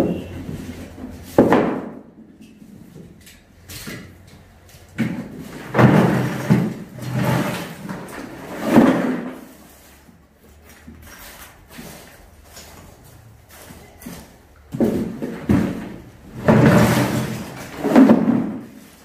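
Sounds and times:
objects knocking and clattering: 0:00.0 - 0:09.5, 0:14.0 - 0:19.0.

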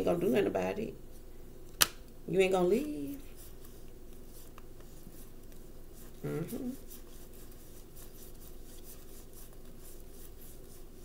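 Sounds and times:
steady low hum: 0:00.0 - 0:11.0
person murmuring: 0:06.2 - 0:06.8.

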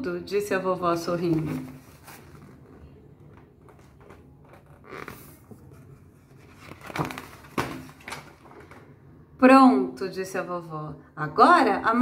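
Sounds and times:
paper pages rustling: 0:01.2 - 0:08.9.

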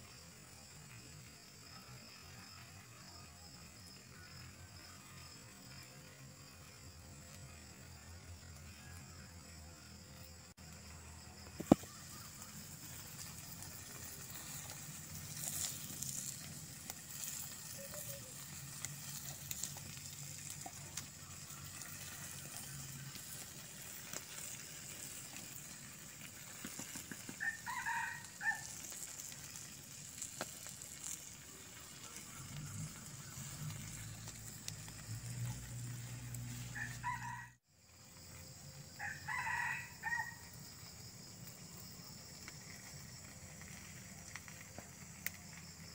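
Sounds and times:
steady high-pitched hiss: 0:00.0 - 0:45.9
rooster crowing: 0:21.4 - 0:22.7, 0:27.4 - 0:28.8, 0:36.4 - 0:37.6, 0:38.9 - 0:40.6.

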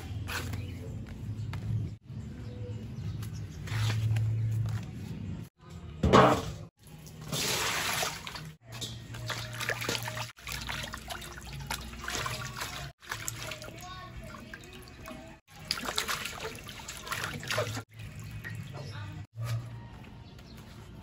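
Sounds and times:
water pouring into metal basin: 0:06.8 - 0:18.8
water splashing and dripping: 0:06.8 - 0:19.3.

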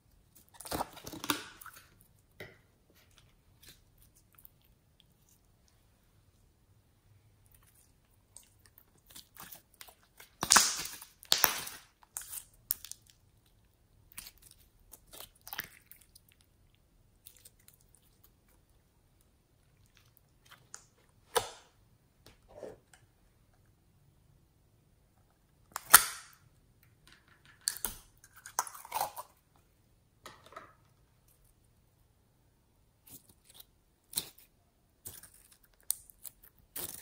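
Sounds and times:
slime crackling and popping: 0:08.4 - 0:13.3.

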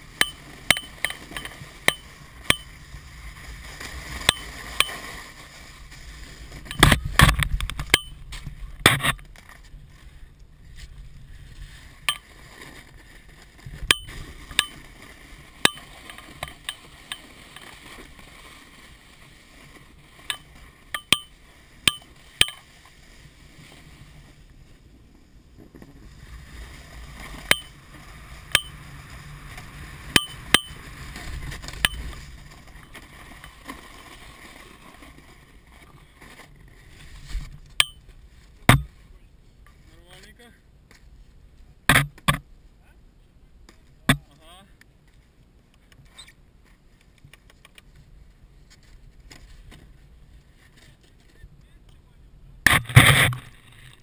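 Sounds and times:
snow and wind hiss: 0:00.0 - 0:07.2, 0:09.6 - 0:39.6.

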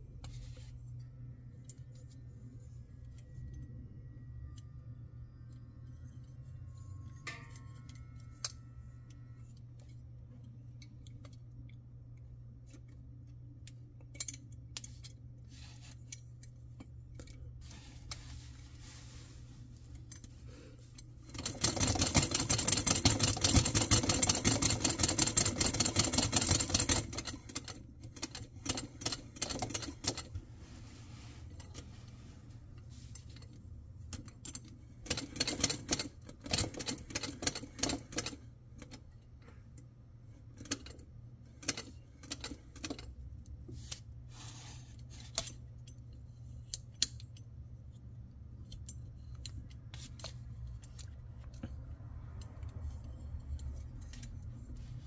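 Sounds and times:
toy sewing machine clattering: 0:21.4 - 0:30.3.

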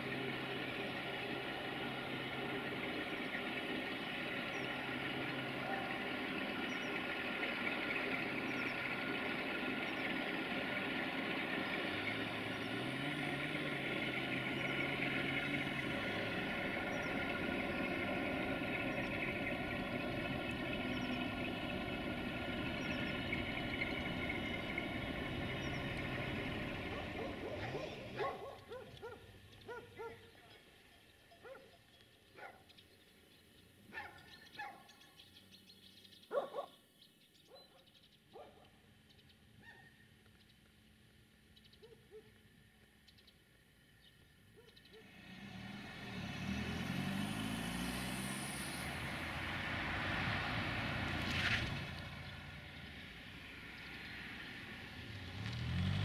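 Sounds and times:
diesel locomotive engine: 0:00.0 - 0:32.1, 0:42.4 - 0:56.0
dog barking: 0:26.9 - 0:30.3, 0:31.4 - 0:31.8, 0:32.4 - 0:32.7, 0:33.9 - 0:34.9, 0:36.3 - 0:36.8, 0:37.5 - 0:38.7, 0:39.6 - 0:39.9, 0:41.8 - 0:42.3.

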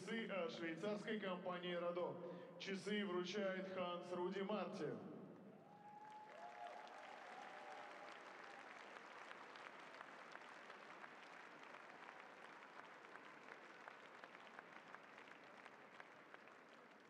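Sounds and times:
crowd applause: 0:05.6 - 0:17.0.

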